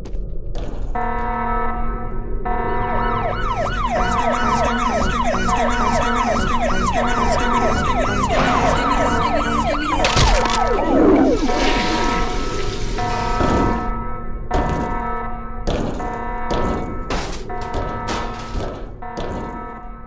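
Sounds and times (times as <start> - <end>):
siren-like electronic wail: 1.0 - 14.4
sharp thump with hiss: 11.4 - 13.8.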